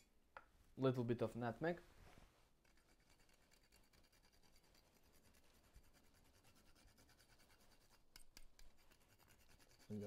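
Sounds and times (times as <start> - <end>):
nutmeg scratching on metal grater: 2.6 - 10.0.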